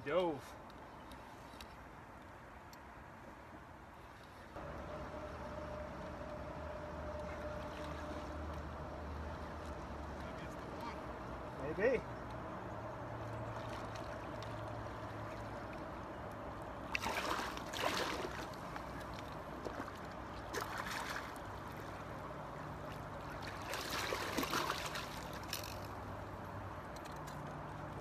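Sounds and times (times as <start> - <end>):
fish splashing in water: 16.8 - 22.1, 22.9 - 26.0.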